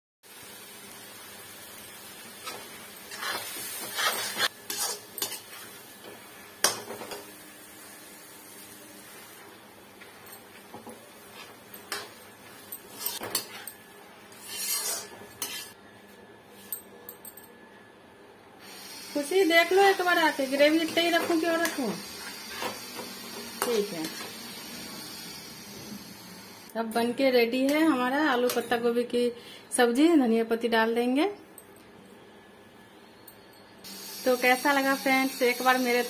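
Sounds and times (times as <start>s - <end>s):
low steady sizzle: 0.2s - 16.7s, 18.1s - 26.8s, 33.6s - 36.0s
metal ladle scraping a pan: 2.4s - 5.6s, 14.3s - 15.8s.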